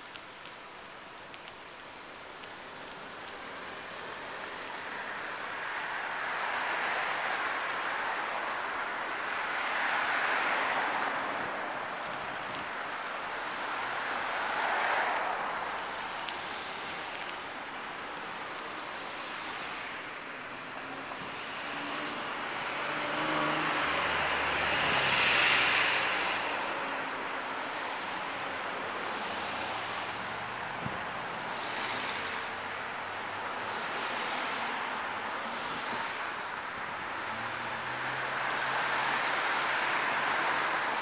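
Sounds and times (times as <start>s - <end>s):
street traffic rush: 0.0s - 41.0s
pickup truck passing close: 21.6s - 27.2s.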